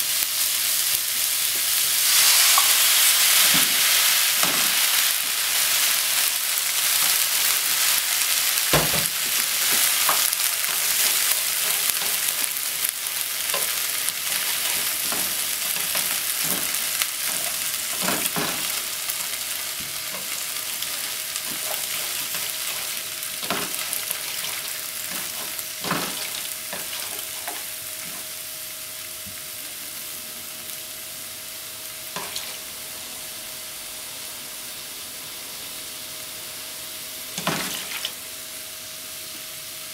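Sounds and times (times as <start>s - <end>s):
food sizzling in frying pan: 0.0s - 39.9s
chopsticks tapping pan: 8.7s - 18.8s.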